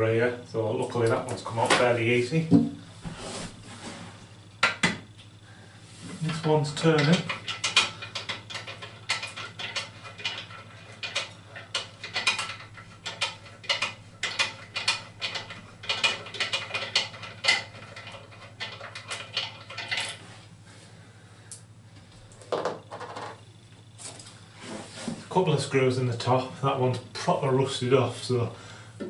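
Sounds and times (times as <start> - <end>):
low steady hum: 0.0 - 29.0.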